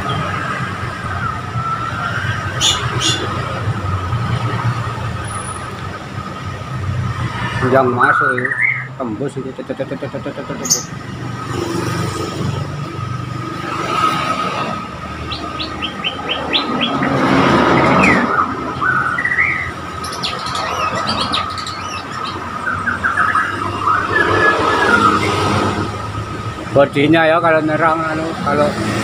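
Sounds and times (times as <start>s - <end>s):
songbirds whistling and trilling: 0.9s - 3.3s, 8.0s - 9.0s, 10.6s - 11.0s, 15.1s - 25.6s.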